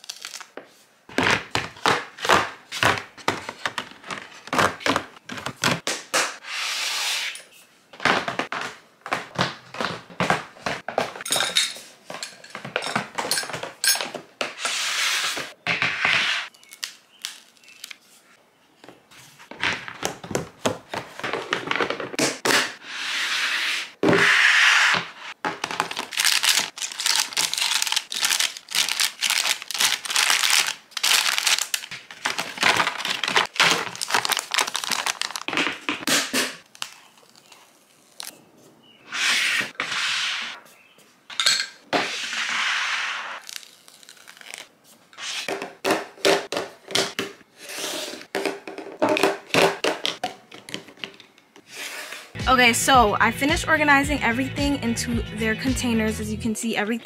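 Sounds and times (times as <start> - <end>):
packaging crinkling: 0.0 - 0.6, 25.6 - 36.0, 43.4 - 44.7.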